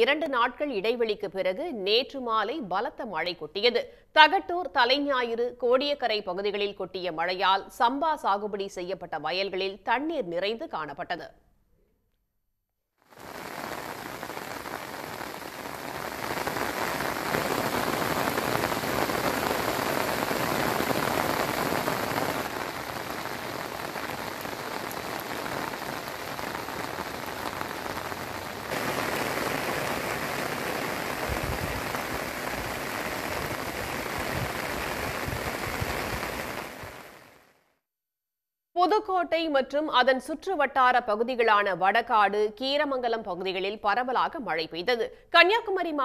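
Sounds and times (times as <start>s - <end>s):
heavy rain on water: 13.1s - 37.6s.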